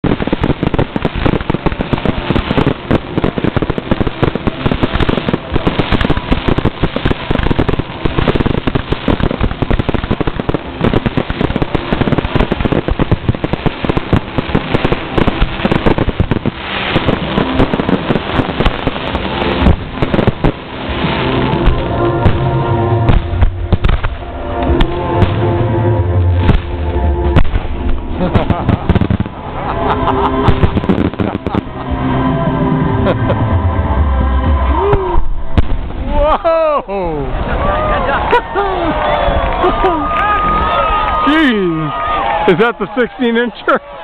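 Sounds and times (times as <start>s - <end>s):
firework bangs: 0.0s - 32.1s, 34.6s - 36.2s
firework crackling: 0.0s - 44.0s.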